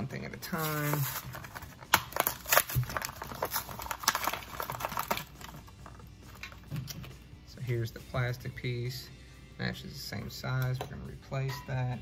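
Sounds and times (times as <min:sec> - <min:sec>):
plastic bag crinkling: 0:00.4 - 0:06.6.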